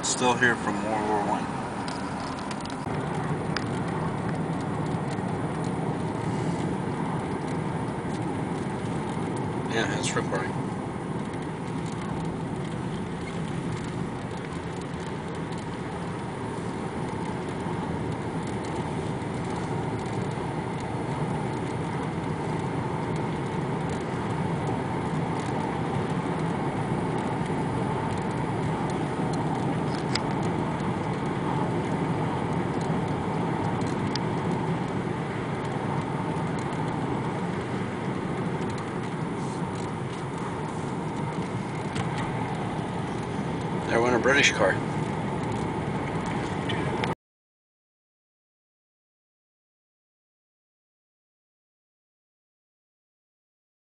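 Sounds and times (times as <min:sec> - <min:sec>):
car road and engine noise: 0:00.0 - 0:47.2.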